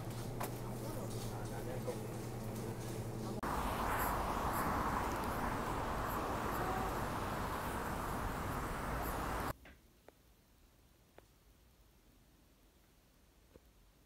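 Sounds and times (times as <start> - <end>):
traffic noise rumble: 0.0 - 9.5.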